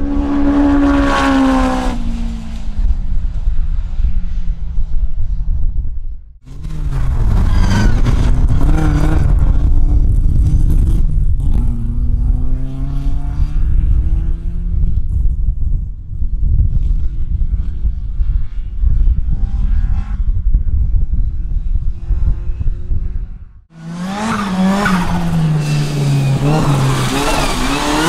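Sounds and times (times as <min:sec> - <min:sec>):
heavy low rumble: 0:00.0 - 0:12.5
car engines accelerating hard: 0:06.5 - 0:14.9, 0:23.7 - 0:28.0.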